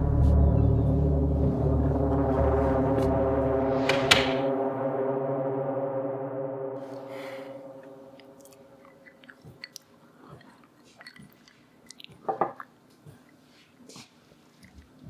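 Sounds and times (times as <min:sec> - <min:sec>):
held music chord: 0:00.0 - 0:09.2
man sipping and swallowing: 0:08.3 - 0:13.4.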